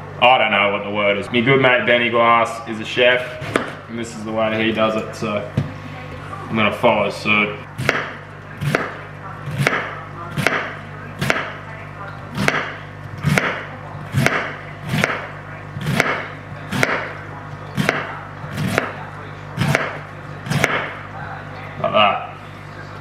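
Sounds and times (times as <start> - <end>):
knife slicing cabbage on cutting board: 7.8 - 11.5, 12.4 - 17.1, 17.8 - 19.0, 19.6 - 20.9.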